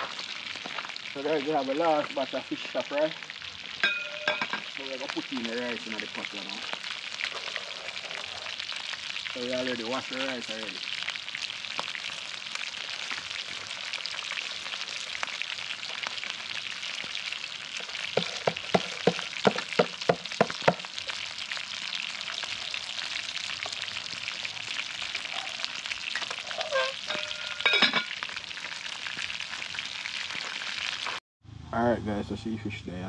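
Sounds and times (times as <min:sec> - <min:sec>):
fish sizzling in oil: 0:00.0 - 0:31.2
metal lid clanking onto pot: 0:03.8 - 0:04.7, 0:27.0 - 0:28.1.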